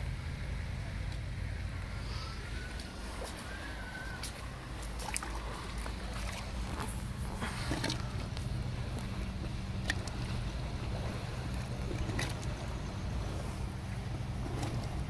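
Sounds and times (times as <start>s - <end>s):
steady low hum: 0.0s - 15.0s
water bubbling from soil: 1.7s - 15.0s.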